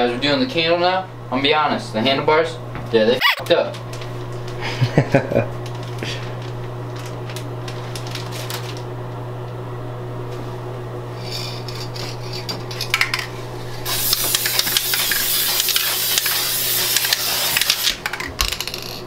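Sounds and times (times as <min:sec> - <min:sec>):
aerosol spray can hissing: 0:13.9 - 0:17.9.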